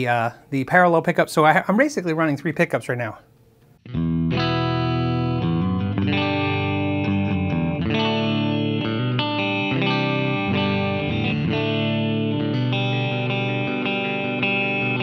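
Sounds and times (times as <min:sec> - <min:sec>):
electric guitar strumming chords: 0:03.8 - 0:15.0.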